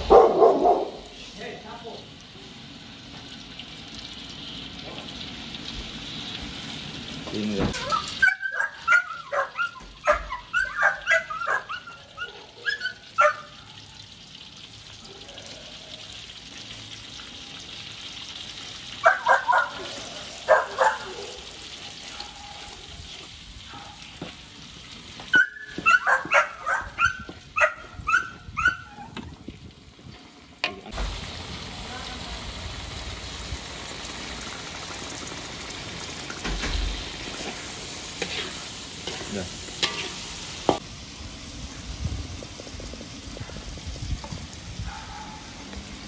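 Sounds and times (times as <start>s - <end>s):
small dog barking and yipping: 0.0s - 1.1s, 7.7s - 14.0s, 19.0s - 22.9s, 23.6s - 24.3s, 25.3s - 29.2s, 44.8s - 45.7s
spice paste sizzling in oil: 1.0s - 8.3s, 13.9s - 20.6s, 21.4s - 26.1s, 29.8s - 46.0s.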